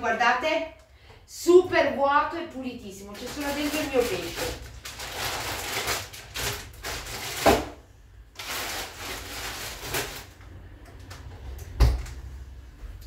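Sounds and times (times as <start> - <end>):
food packets rustling and knocking: 3.2 - 7.8, 8.4 - 10.4.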